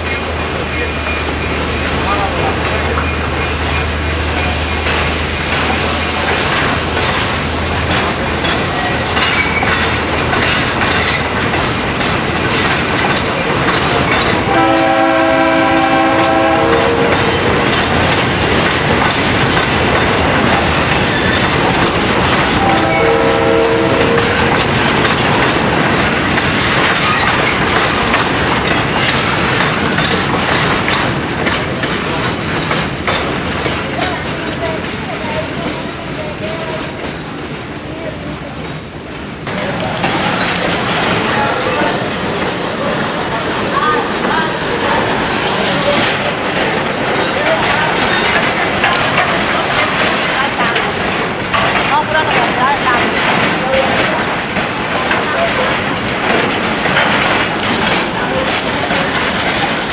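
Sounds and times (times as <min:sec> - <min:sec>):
train rolling on jointed track: 0:00.0 - 0:59.9
locomotive horn blast: 0:14.5 - 0:17.2, 0:22.6 - 0:24.6.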